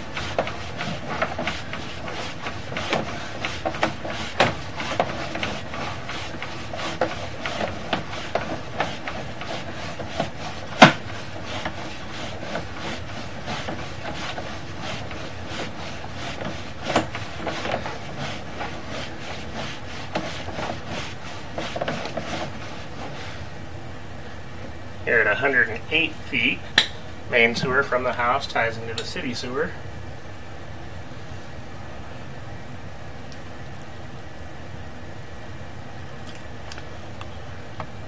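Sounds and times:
cable rubbing and scraping in pipe: 0.0 - 23.4.

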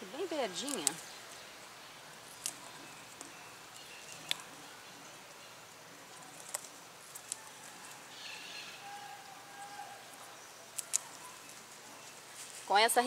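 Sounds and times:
faint outdoor background: 0.0 - 13.0
onion stalks snapping: 0.6 - 1.1, 2.3 - 4.5, 6.2 - 8.0, 10.1 - 11.6.

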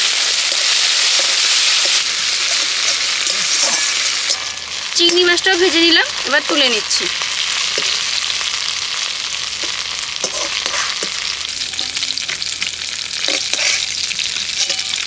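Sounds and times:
shrimp sizzling in hot oil: 0.0 - 15.0
metal ladle scraping and knocking: 1.2 - 4.6.

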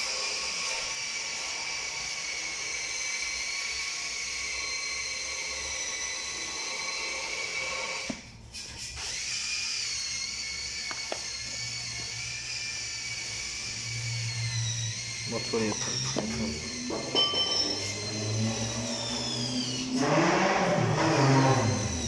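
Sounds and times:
power tool whining: 0.0 - 22.0.

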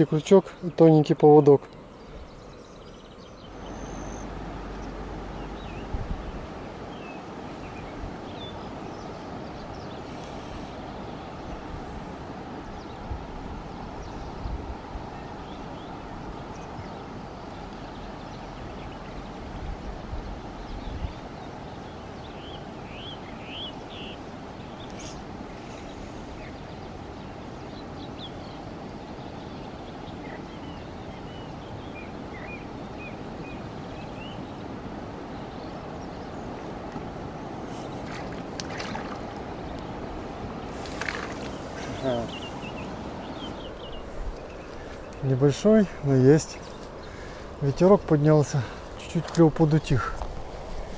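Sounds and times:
small birds chirping: 0.0 - 12.0, 12.6 - 36.8, 37.5 - 50.9
river water hiss: 0.0 - 50.9
breeze: 36.0 - 50.9
fish splashing and thrashing: 38.0 - 39.5, 40.7 - 41.9.

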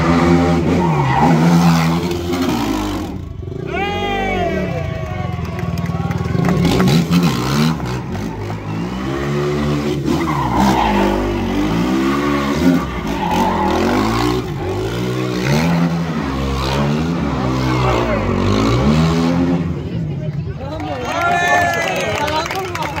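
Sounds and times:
quad engine revving: 0.0 - 3.7, 6.0 - 19.9
tyres skidding on asphalt: 0.0 - 23.0.

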